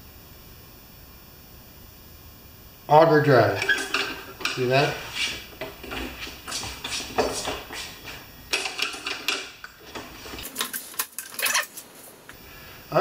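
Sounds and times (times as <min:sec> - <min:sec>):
metallic clanks and rattles: 0:08.5 - 0:12.2.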